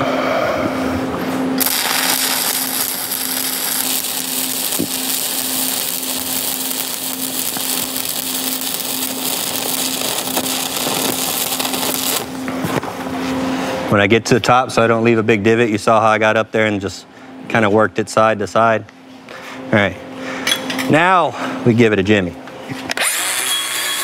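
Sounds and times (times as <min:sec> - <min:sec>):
low hum: 0:00.0 - 0:13.9
crackling welding arc: 0:01.6 - 0:12.4, 0:23.0 - 0:24.0.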